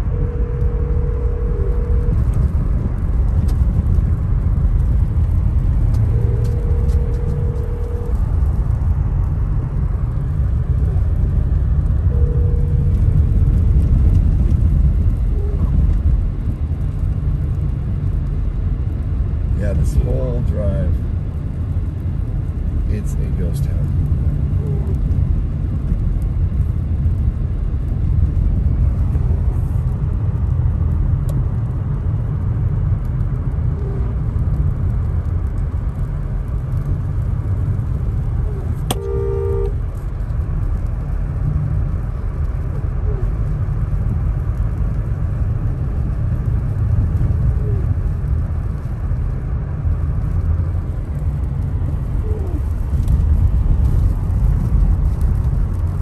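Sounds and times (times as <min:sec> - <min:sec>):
short electronic beep: 0:00.0 - 0:02.2, 0:12.1 - 0:13.0
engine and tyres rumbling: 0:00.0 - 0:56.0.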